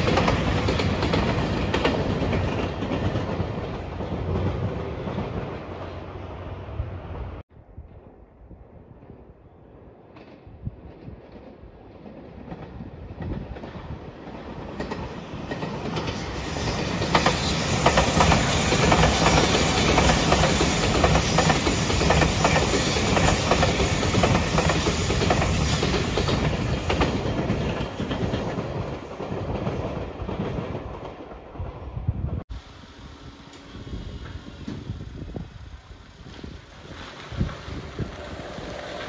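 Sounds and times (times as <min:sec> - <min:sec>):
train wheels clattering over rail joints: 0:00.0 - 0:05.6, 0:14.6 - 0:31.2
electric train passing: 0:00.0 - 0:39.0.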